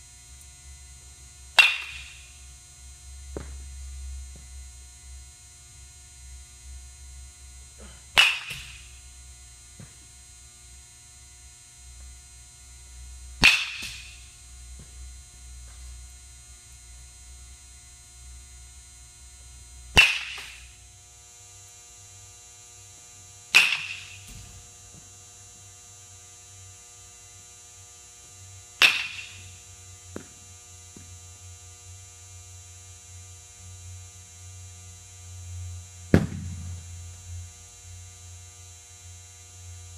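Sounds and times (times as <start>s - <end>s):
steady low hum: 0.0s - 39.9s
baseball bat cracking balls: 1.6s - 2.4s, 7.8s - 9.0s, 9.7s - 10.1s, 13.4s - 16.0s, 19.9s - 20.8s, 23.5s - 25.1s, 28.8s - 31.1s, 36.2s - 36.8s.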